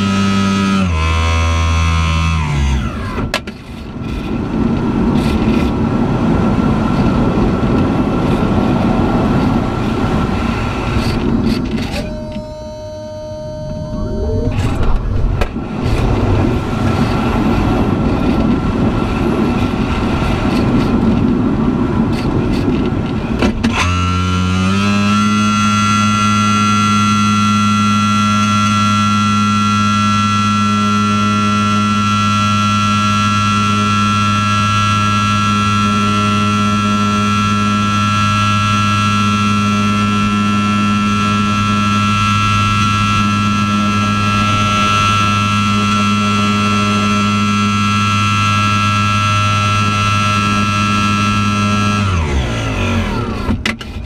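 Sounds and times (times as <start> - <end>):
rushing airflow in cockpit: 2.5 - 24.0, 29.0 - 54.0
steady hum with high tone: 5.4 - 20.8.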